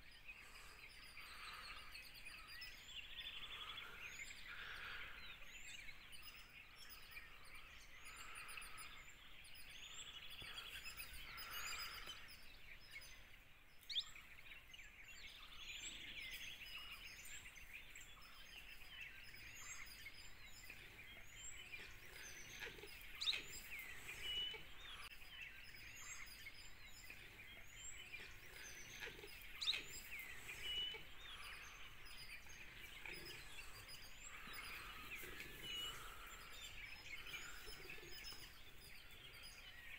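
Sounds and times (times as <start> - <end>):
sharp bird calls: 0.0 - 39.9
high bird chirps: 16.3 - 39.9.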